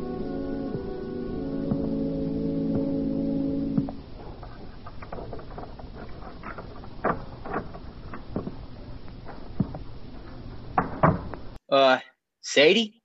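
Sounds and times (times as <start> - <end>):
door: 4.9 - 8.5, 10.8 - 11.4
soft footsteps: 7.7 - 11.5.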